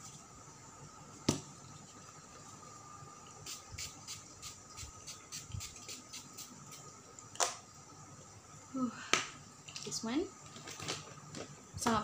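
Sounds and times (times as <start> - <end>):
spray bottle hissing: 3.4 - 6.9.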